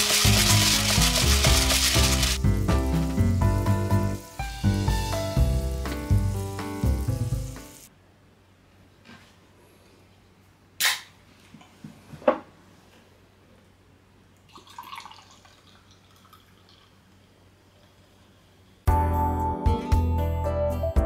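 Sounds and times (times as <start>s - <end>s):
fizzing drink poured into glass: 0.0s - 2.4s, 14.5s - 17.0s
piano music: 0.0s - 7.9s, 18.9s - 21.0s.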